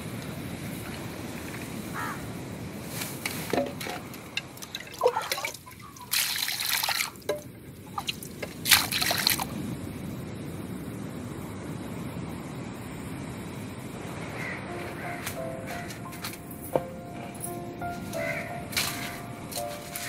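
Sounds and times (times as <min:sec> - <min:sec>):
water splashing into pan: 0:04.6 - 0:09.4.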